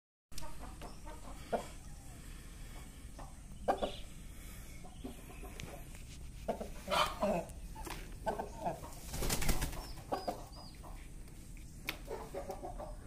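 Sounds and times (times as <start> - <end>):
rooster clucking: 0.4 - 2.0, 3.2 - 4.1, 4.9 - 11.1, 12.0 - 13.0.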